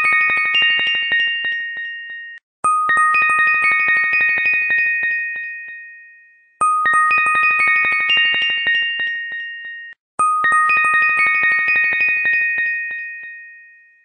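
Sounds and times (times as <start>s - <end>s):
bell tone melody: 0.0s - 14.0s.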